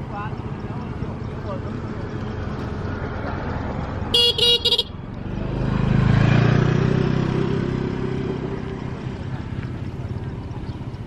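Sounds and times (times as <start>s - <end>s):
vehicle engine passing by: 0.0s - 11.0s
vehicle horn beeps: 4.1s - 5.0s.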